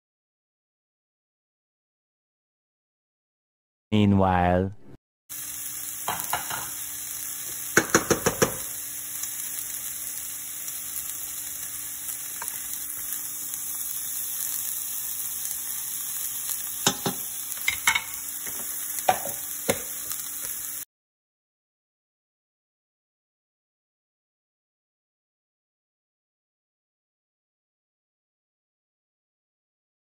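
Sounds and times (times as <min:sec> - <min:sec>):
onion sizzling in frying pan: 0:05.3 - 0:20.9
utensils clacking against pans: 0:06.0 - 0:06.8, 0:07.7 - 0:08.7, 0:16.8 - 0:20.0.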